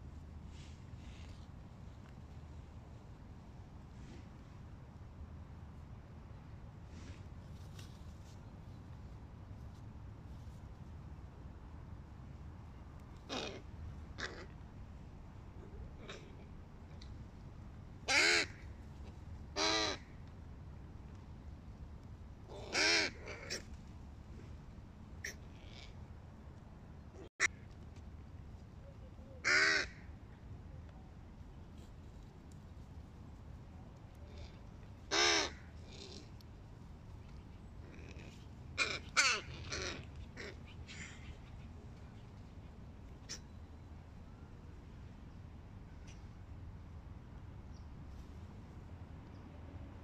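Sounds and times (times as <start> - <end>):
crows cawing: 14.2 - 14.5, 18.1 - 18.6, 19.6 - 20.0, 22.5 - 23.6, 29.4 - 30.1, 35.1 - 36.2, 38.8 - 41.2.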